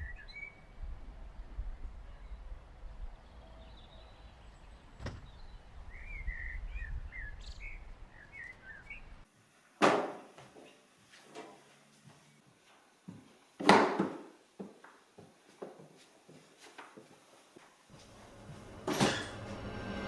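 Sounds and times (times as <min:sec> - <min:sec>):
small birds chirping: 0:00.0 - 0:09.3
loud indoor thump: 0:05.0 - 0:05.4
low outdoor rumble: 0:18.0 - 0:20.0.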